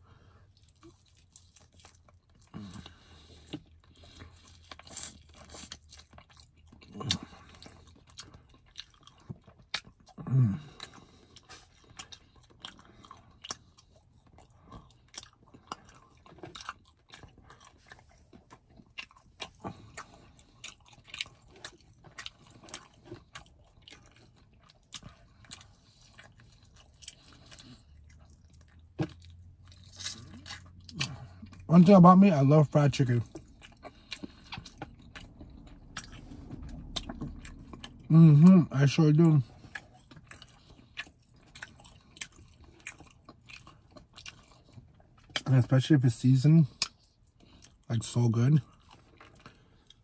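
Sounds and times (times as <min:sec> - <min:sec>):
chewing crispy food: 0:00.0 - 0:50.0
low hum: 0:33.8 - 0:38.8.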